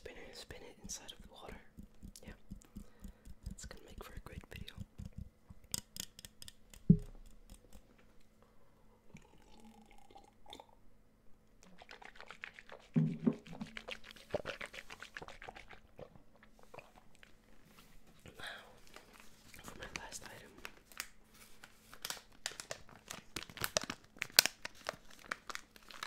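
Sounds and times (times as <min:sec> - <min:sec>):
low thump: 0:06.9 - 0:07.2.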